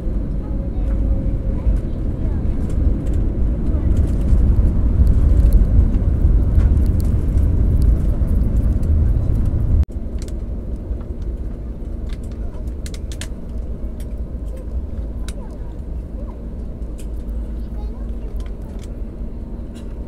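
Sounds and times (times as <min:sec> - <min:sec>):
low rumble inside aircraft cabin: 0:00.0 - 0:20.0.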